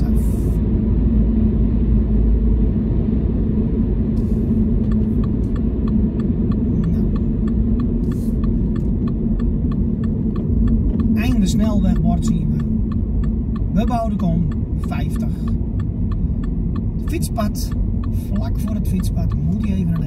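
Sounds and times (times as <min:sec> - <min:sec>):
car road and engine noise: 0:00.0 - 0:20.0
regular ticking: 0:04.8 - 0:20.0.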